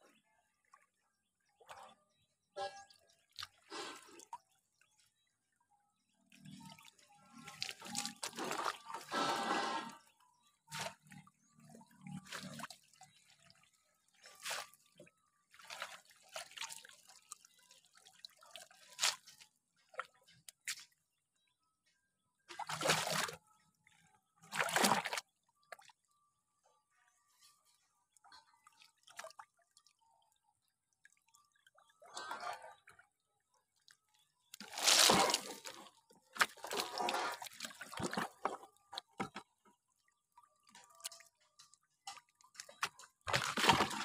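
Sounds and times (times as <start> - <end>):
water splashing and dripping: 6.3 - 21.0, 22.5 - 23.4, 24.5 - 25.9, 33.8 - 39.5, 40.6 - 44.0.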